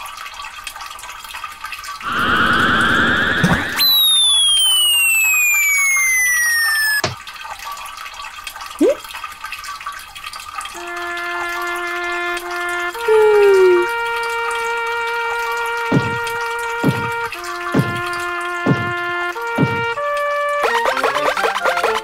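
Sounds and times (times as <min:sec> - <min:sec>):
running stream: 0:00.0 - 0:22.0
warbling buzz: 0:02.0 - 0:07.0
long falling whistle: 0:02.1 - 0:07.0, 0:13.0 - 0:13.9
short rising chirp: 0:02.1 - 0:07.0
held steady notes: 0:10.8 - 0:22.0.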